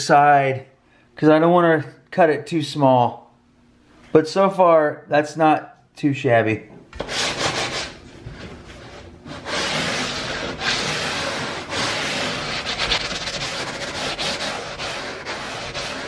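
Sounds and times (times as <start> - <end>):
hand sanding wood: 7.0 - 16.0.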